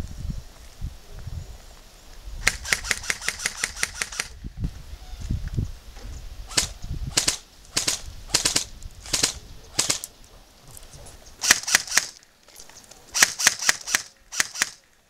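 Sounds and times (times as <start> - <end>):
airsoft rifle shots: 2.4 - 4.4, 6.5 - 10.1, 11.4 - 12.2, 13.1 - 14.9.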